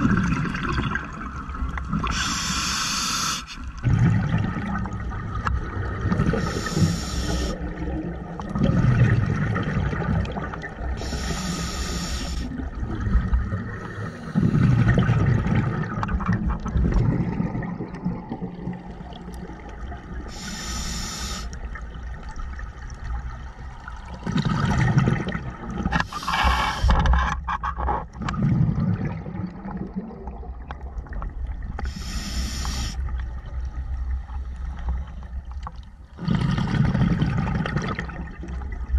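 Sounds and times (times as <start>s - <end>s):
exhaust bubbles bubbling: 0.0s - 2.1s, 3.8s - 6.6s, 7.6s - 11.0s, 12.5s - 20.2s, 24.1s - 25.9s, 36.2s - 38.9s
regulator inhale hiss: 2.0s - 3.7s, 6.4s - 7.6s, 11.0s - 12.5s, 13.8s - 14.6s, 20.3s - 21.6s, 26.0s - 27.0s, 31.8s - 33.0s.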